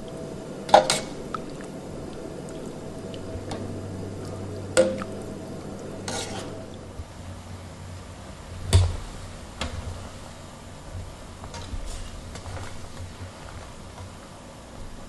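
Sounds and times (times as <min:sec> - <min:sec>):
strainer scraping pot: 0:06.0 - 0:06.7.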